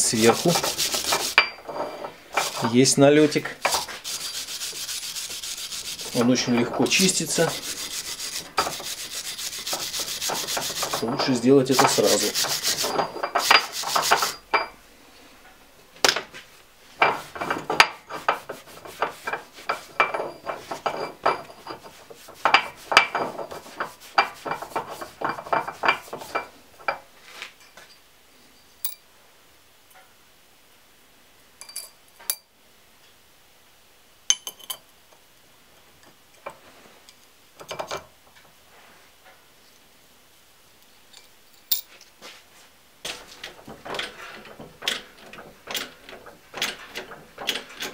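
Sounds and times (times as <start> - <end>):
steel parts clinking and scraping: 0.1 - 14.7, 17.0 - 27.0, 41.1 - 42.2.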